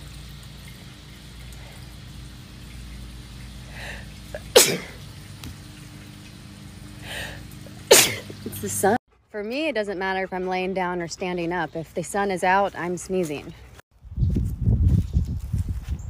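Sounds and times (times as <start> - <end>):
woman sneezing: 7.9 - 8.3.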